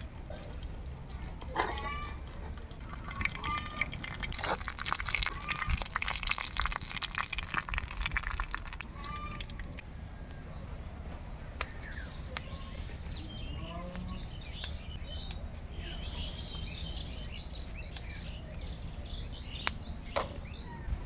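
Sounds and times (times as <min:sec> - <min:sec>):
hot oil sizzling and spattering: 0:03.9 - 0:08.9.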